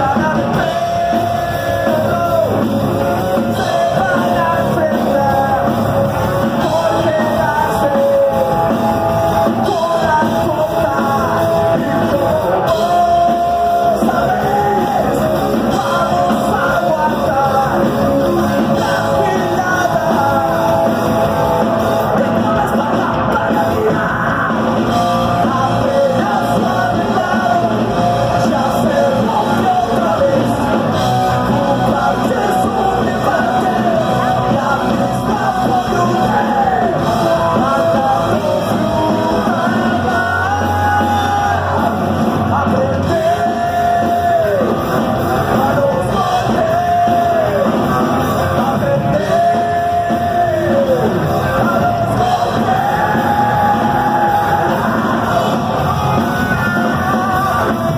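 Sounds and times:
crowd: 0.0 - 57.9
drums: 0.0 - 57.9
electric guitars: 0.0 - 57.9
person singing: 0.0 - 57.9.

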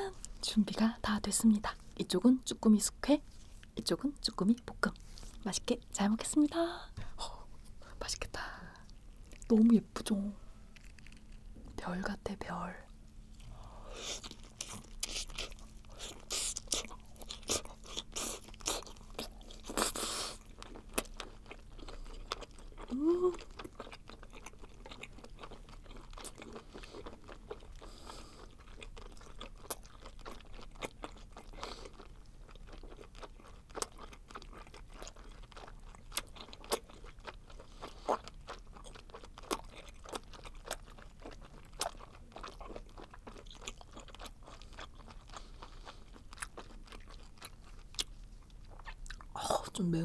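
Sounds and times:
wet chewing clicks: 28.6 - 49.3.

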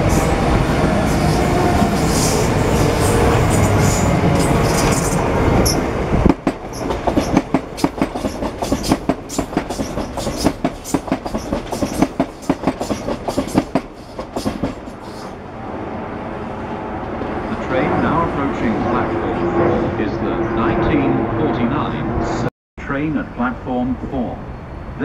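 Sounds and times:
train rumbling past: 0.0 - 22.5
train wheels clacking over rail joints: 4.4 - 15.3.

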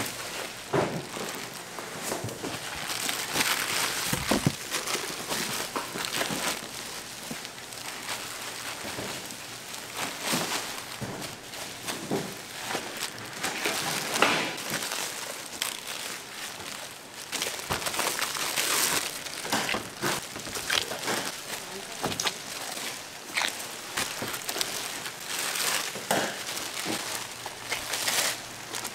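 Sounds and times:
crinkling handling noise: 0.0 - 28.9.

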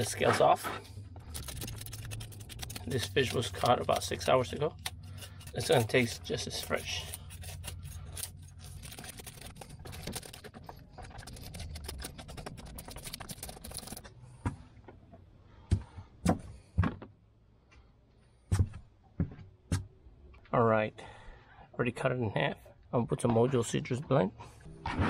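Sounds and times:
knife scraping fish scales: 1.4 - 10.5.

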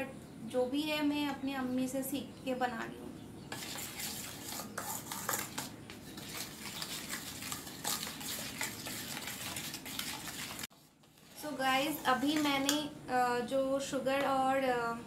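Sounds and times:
whisk clinking in a metal bowl: 3.6 - 10.7.

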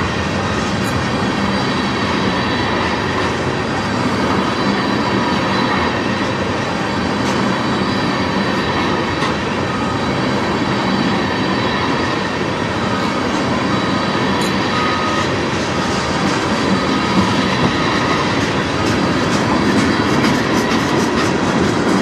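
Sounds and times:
train wheels on rails: 0.0 - 22.0.

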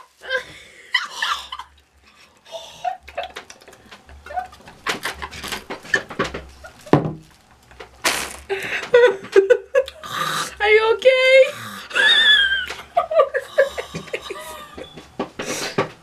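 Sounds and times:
woman laughing in wheezing gasps: 0.2 - 1.7, 11.8 - 14.9.

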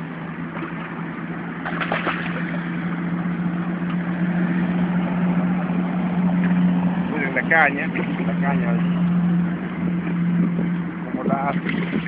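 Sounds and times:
engine-like hum: 0.0 - 12.0
fish splashing at water surface: 0.4 - 3.2, 11.2 - 12.0.

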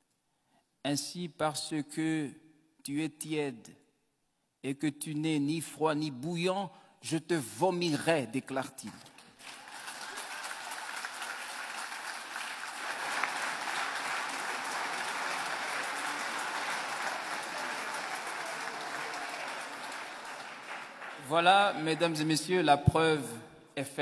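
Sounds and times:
audience applauding: 9.1 - 22.5.

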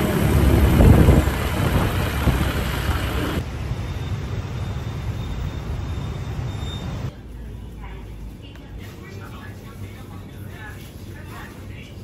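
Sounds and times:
wind and road noise on motorbike: 0.0 - 3.4
street traffic noise: 0.0 - 12.0.

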